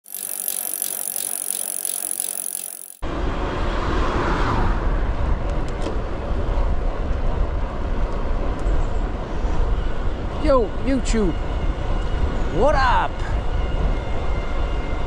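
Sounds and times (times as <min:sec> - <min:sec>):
bicycle tyre road noise: 0:00.0 - 0:10.2.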